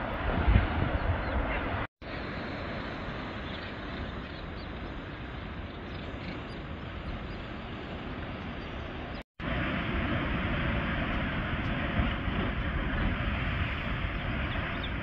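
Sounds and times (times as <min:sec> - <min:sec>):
wind: 0:00.0 - 0:15.0
waves breaking: 0:01.5 - 0:15.0.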